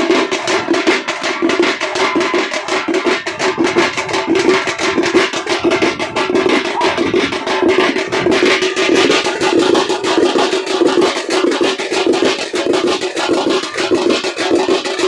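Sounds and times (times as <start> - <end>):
fast steady drumming: 0.0 - 15.0.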